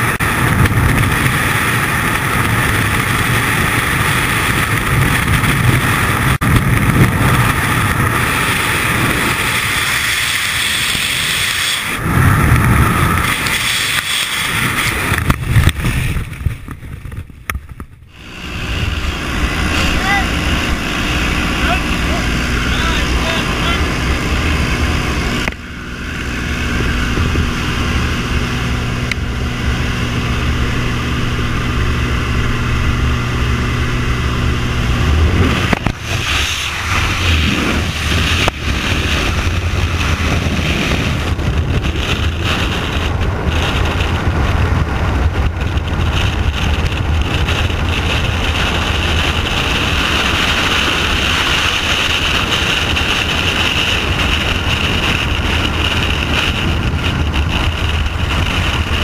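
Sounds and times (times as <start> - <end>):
freefall wind rushing: 0.0 - 59.0
propeller plane engine droning: 0.0 - 59.0.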